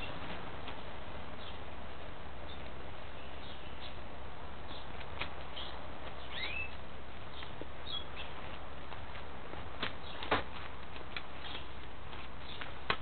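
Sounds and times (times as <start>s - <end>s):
small bird chirping: 2.4s - 4.0s, 4.6s - 8.5s, 11.3s - 11.8s, 12.4s - 12.8s.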